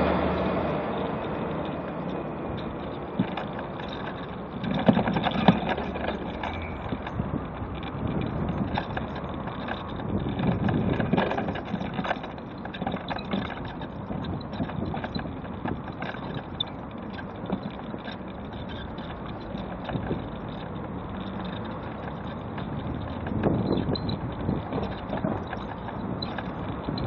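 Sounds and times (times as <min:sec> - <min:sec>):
cars passing: 0:00.0 - 0:27.0
mobility scooter rumbling over paving: 0:00.0 - 0:27.0
wind on microphone: 0:06.6 - 0:12.0, 0:21.6 - 0:27.0.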